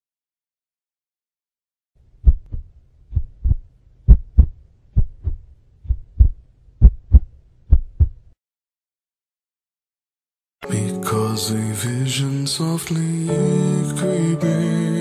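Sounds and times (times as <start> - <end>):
heartbeat thumps: 2.2 - 8.2.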